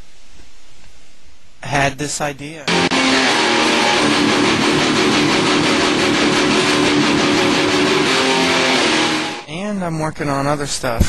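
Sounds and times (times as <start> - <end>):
distorted electric guitars: 2.7 - 9.5.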